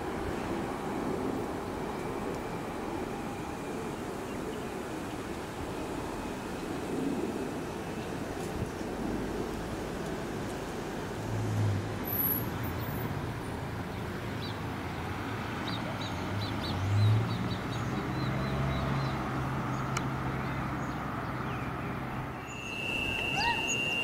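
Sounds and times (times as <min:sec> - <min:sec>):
steady rushing noise: 0:00.0 - 0:15.6.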